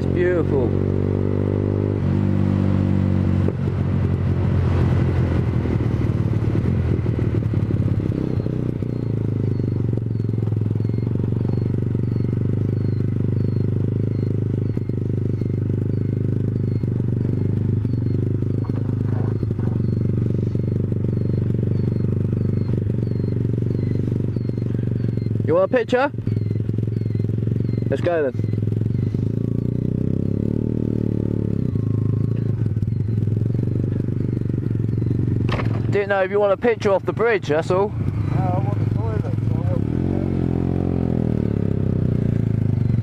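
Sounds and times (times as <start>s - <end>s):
motorcycle engine running: 0.0s - 43.0s
faint high chirp: 8.0s - 35.4s.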